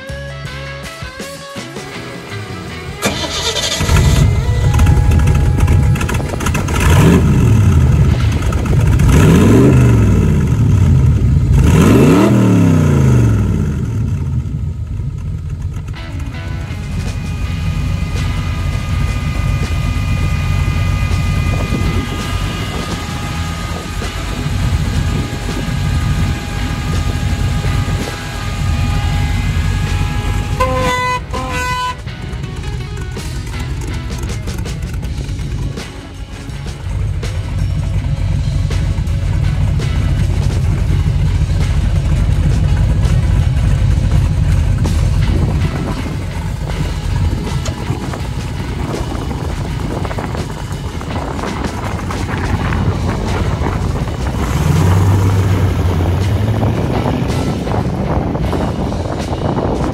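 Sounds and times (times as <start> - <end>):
car engine starting and revving: 1.6 - 59.9
car horn beeps: 28.3 - 32.2.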